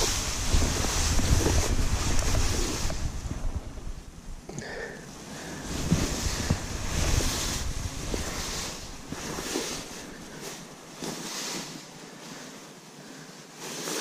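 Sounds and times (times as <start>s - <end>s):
tall grass rustling: 0.0s - 4.4s, 5.0s - 14.0s
wind buffeting microphone: 0.0s - 4.5s, 5.4s - 10.9s.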